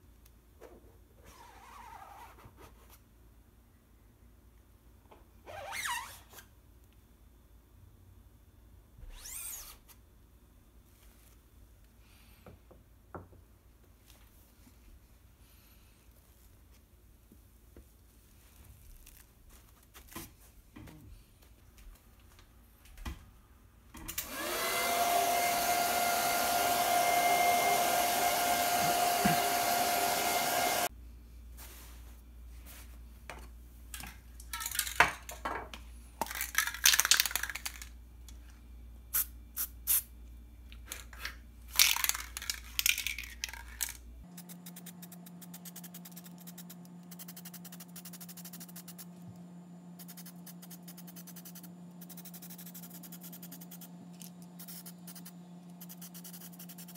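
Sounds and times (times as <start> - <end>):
hair dryer blower running: 24.1 - 30.9.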